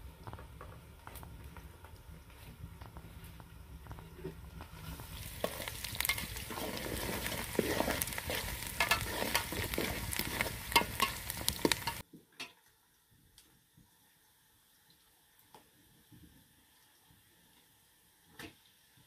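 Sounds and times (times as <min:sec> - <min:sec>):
food sizzling in a pan: 0:03.8 - 0:12.1
utensil clicks and scrapes: 0:04.6 - 0:12.0.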